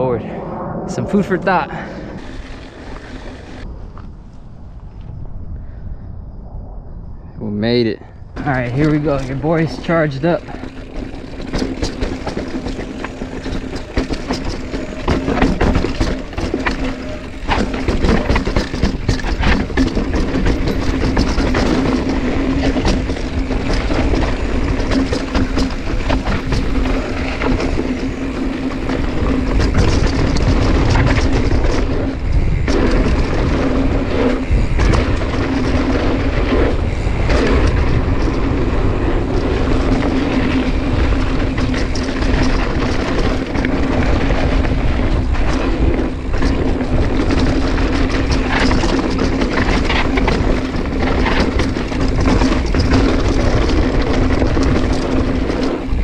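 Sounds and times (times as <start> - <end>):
mountain bike rumbling on dirt trail: 0.0 - 5.0, 7.6 - 56.0
wind buffeting microphone: 0.0 - 56.0
bike knocking over bumps: 8.4 - 56.0.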